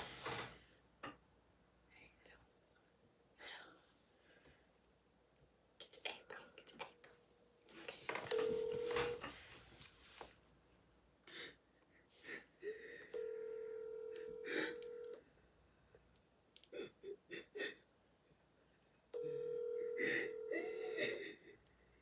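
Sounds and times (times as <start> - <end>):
phone ringback tone: 8.2 - 9.3, 13.2 - 15.2, 19.2 - 21.1
stifled giggles: 20.0 - 21.7.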